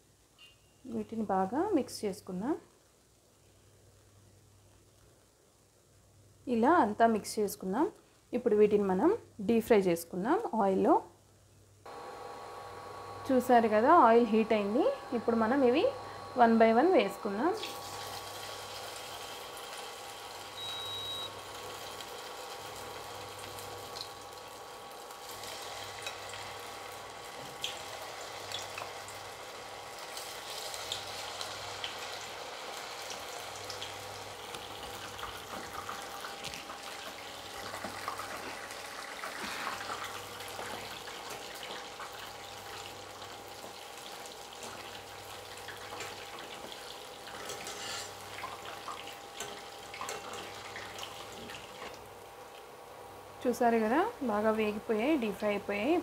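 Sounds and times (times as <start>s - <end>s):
food deep-frying in hot oil: 16.8s - 56.0s.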